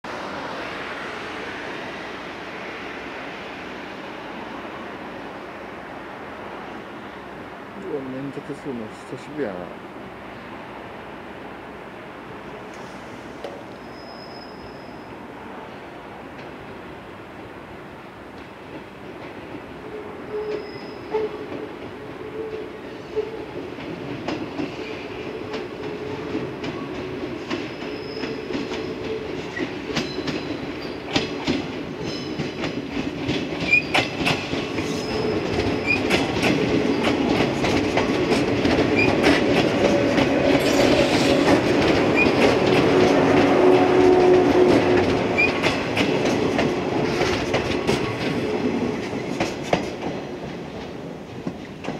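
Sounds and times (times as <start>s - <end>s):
train passing: 0.0s - 51.9s
short high wheel squeals: 13.8s - 15.1s, 20.3s - 21.3s
wheels clicking over rail joints: 23.2s - 51.9s.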